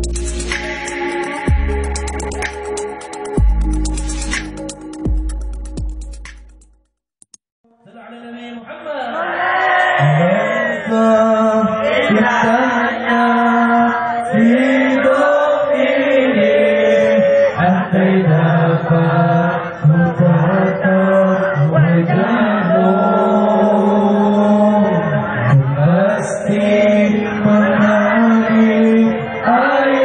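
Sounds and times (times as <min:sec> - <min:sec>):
man chanting devotional song: 0:16.5 - 0:29.8.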